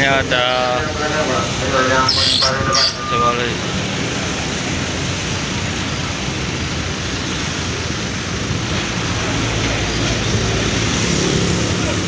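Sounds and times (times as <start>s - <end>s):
bus diesel engine rumbling: 0.0s - 12.0s.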